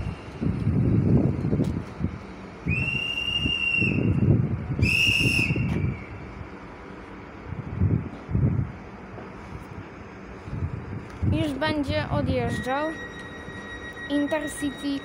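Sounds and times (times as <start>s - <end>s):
wind rumble on microphone: 0.0s - 6.6s, 7.4s - 13.0s
staff whistle blasts: 2.7s - 4.2s, 4.8s - 6.1s.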